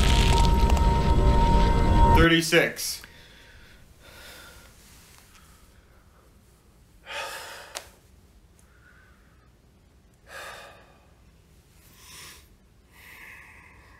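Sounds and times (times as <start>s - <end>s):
man breathing out heavily: 3.1s - 4.7s.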